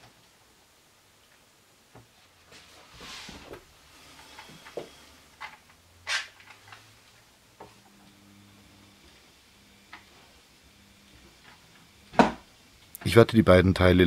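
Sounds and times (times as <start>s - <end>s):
wood sliding scrape: 2.5s - 5.6s.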